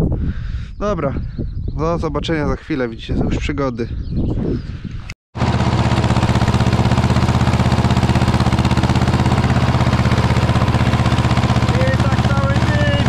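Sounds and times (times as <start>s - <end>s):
tractor diesel engine running: 5.4s - 13.0s.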